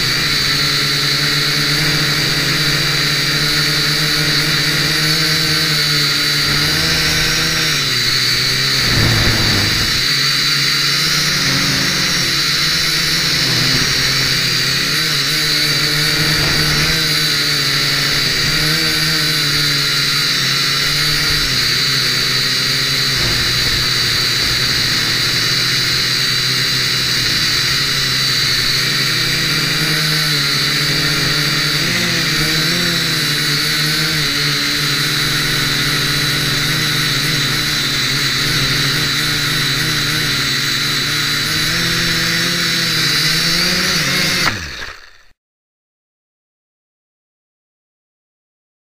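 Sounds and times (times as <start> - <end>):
quadcopter motors whining: 0.0 - 45.4
wind rumble on microphone: 8.5 - 10.2.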